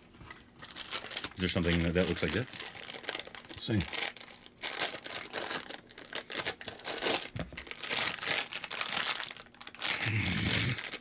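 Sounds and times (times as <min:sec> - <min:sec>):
foil wrapper crinkling: 0:00.3 - 0:11.0.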